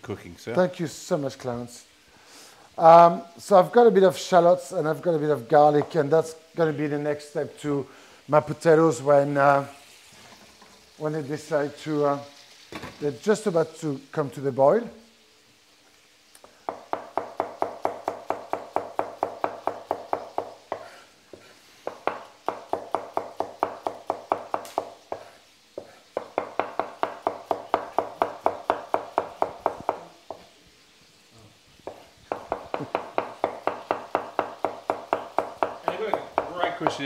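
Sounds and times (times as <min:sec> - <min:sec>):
knife chopping on wooden board: 0:16.7 - 0:30.4, 0:31.8 - 0:37.0.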